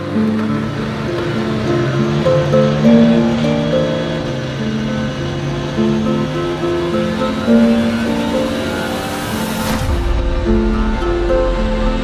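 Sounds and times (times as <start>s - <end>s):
harp plucked notes: 0.0s - 12.0s
rush of noise: 0.0s - 12.0s
low rumble: 9.5s - 12.0s.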